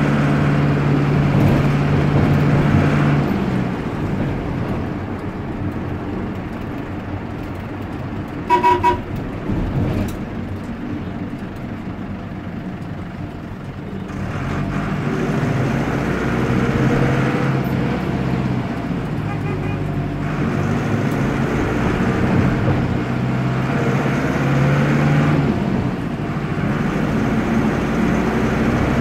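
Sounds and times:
diesel engine running: 0.0 - 29.0
horn toots: 8.5 - 9.2, 19.2 - 19.9.

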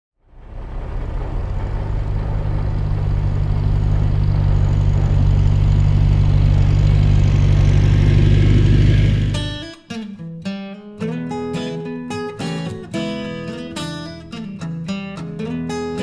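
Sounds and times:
tractor engine running: 0.2 - 9.6.

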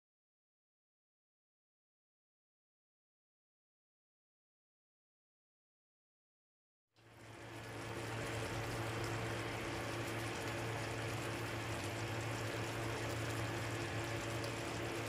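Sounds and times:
stew bubbling in a pan: 7.0 - 15.0.

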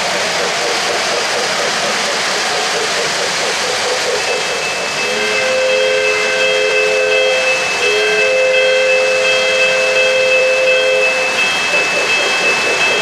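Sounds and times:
model trains rumbling on track: 0.0 - 13.0
locomotive whistle: 4.3 - 13.0.

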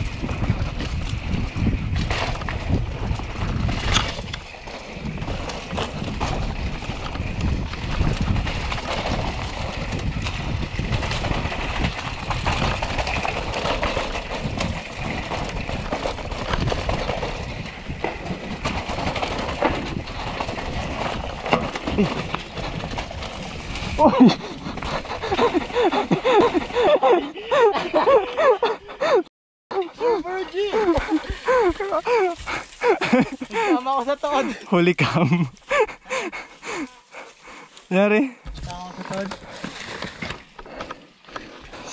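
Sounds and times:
bike knocks and rattles: 0.0 - 26.9
bike tyre and wind noise: 0.0 - 41.9.

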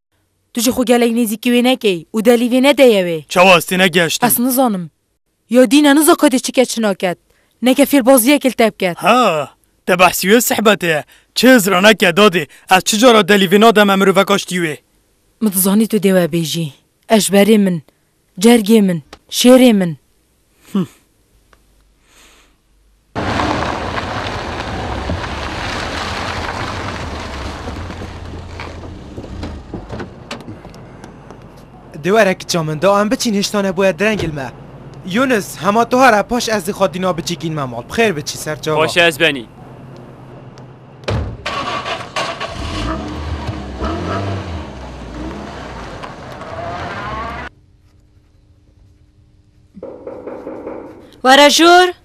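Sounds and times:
car driving and slowing to a stop: 23.2 - 31.9, 39.7 - 47.5
car door shutting: 28.0 - 30.6.

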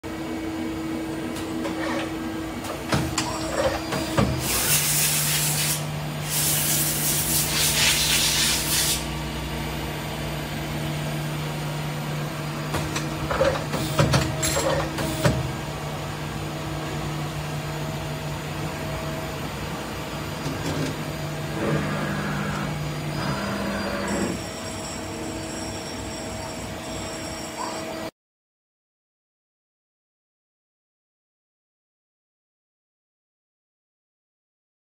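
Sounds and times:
lathe machine hum: 15.5 - 27.4.

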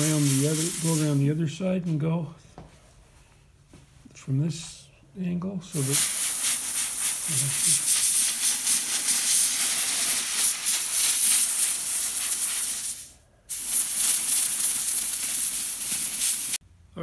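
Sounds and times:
air eraser hissing: 0.0 - 1.4, 5.8 - 16.6.

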